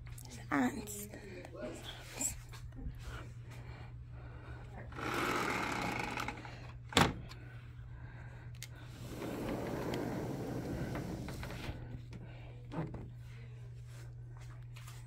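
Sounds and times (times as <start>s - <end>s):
sliding door rolling on track: 9.0s - 11.9s.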